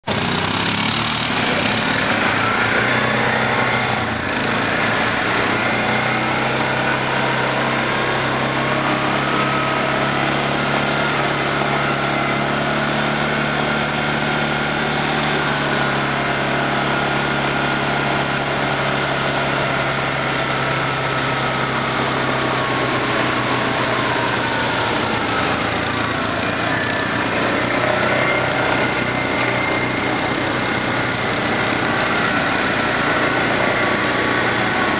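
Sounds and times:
quad bike engine running: 0:00.0 - 0:34.9
water splashing around wheels: 0:00.1 - 0:34.9.

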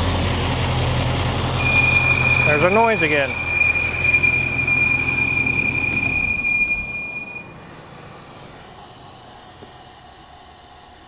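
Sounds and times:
car engine rumble: 0:00.0 - 0:11.0
shrill engine whistle: 0:01.6 - 0:08.2.

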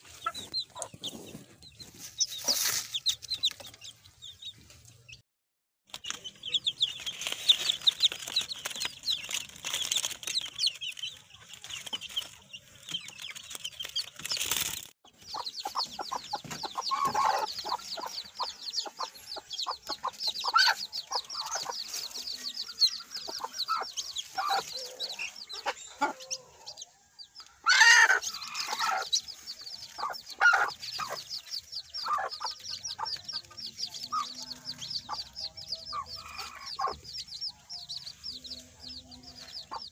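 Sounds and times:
hen clucking: 0:00.0 - 0:05.1, 0:15.0 - 0:39.9
chicks peeping: 0:00.0 - 0:05.2, 0:05.9 - 0:39.9.

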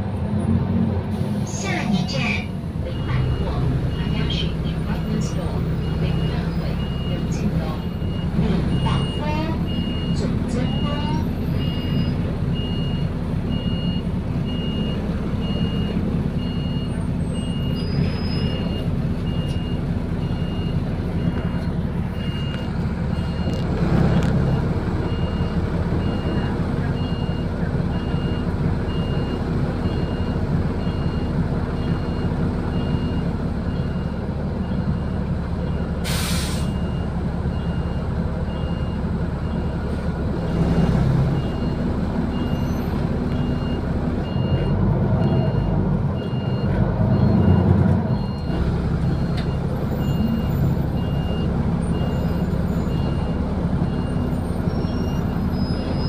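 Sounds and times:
bus running hum: 0:00.0 - 0:56.0
electronic warning beep: 0:43.3 - 0:56.0.

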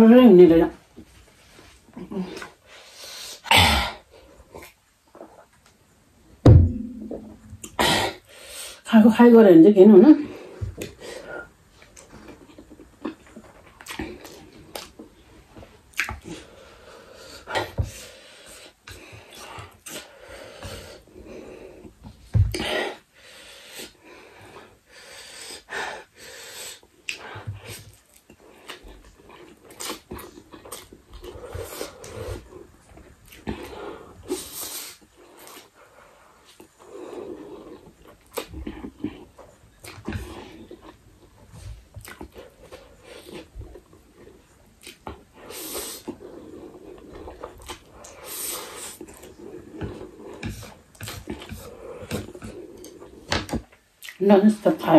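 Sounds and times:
person breathing: 0:06.8 - 0:08.8
wet chewing and mouth clicks: 0:11.8 - 0:15.1, 0:15.9 - 0:16.4, 0:27.0 - 0:35.7, 0:37.5 - 0:54.2.

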